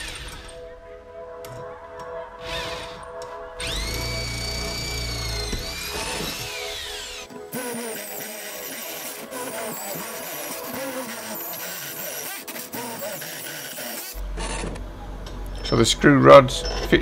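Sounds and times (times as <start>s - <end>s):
electric drill spinning down: 0.0s - 0.5s, 3.6s - 14.2s
background music: 0.0s - 17.0s.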